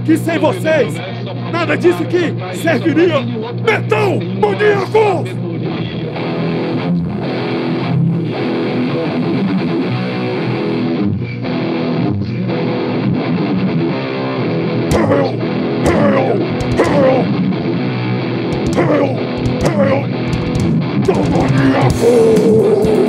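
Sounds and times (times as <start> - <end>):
electric guitars: 0.0 - 23.0
drums: 14.9 - 17.4, 18.5 - 23.0.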